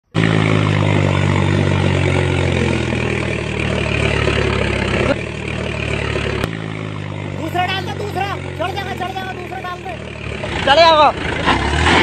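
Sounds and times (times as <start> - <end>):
tractor engine running: 0.0 - 12.0.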